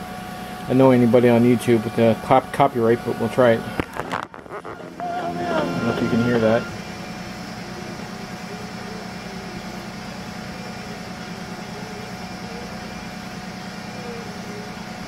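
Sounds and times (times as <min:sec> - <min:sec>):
tape deck transport hum: 0:01.8 - 0:10.0
faint music from tape: 0:04.6 - 0:15.0.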